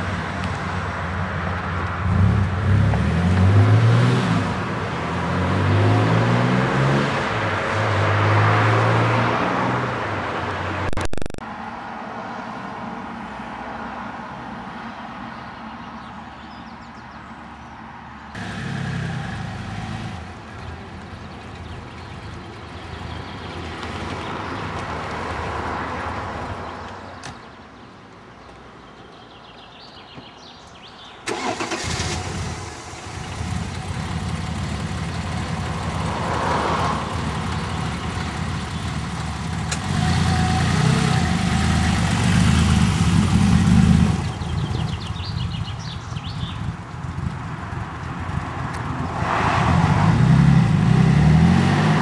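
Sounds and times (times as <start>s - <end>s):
car engine running: 31.3s - 48.2s.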